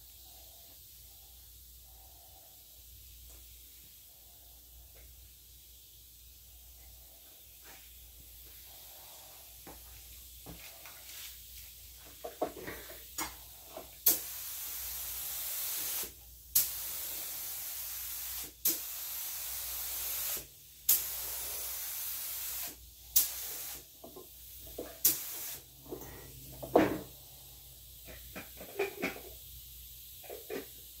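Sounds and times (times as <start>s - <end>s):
spray gun hissing: 14.0s - 25.8s.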